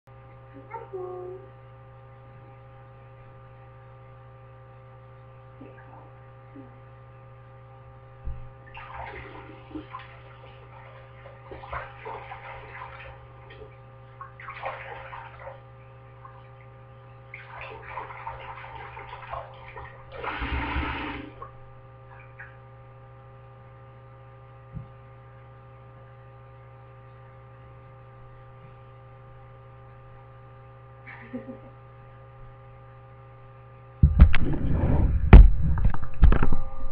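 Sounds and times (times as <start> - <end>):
electrical hum: 0.1 - 36.9
tap water splashing into sink: 8.3 - 15.6, 17.3 - 21.5.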